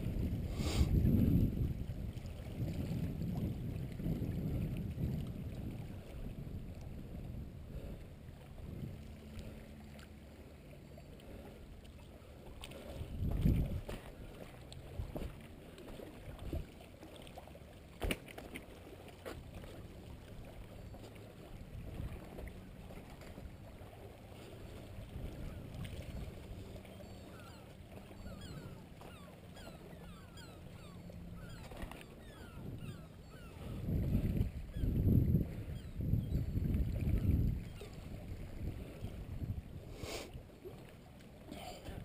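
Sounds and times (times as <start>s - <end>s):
wind on microphone: 0.0s - 9.6s, 12.9s - 15.4s, 16.3s - 16.7s, 21.6s - 22.5s, 24.6s - 40.5s
sea water lapping on rocks: 11.2s - 29.2s.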